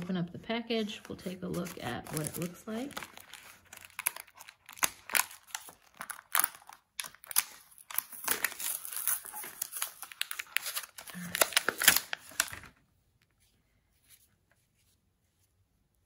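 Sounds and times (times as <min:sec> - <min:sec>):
plastic blister pack crinkling: 0:00.0 - 0:12.8.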